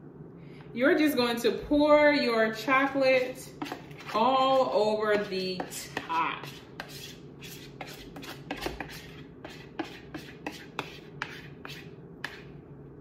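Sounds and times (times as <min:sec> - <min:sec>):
spatula scraping a bowl: 0:02.6 - 0:12.6.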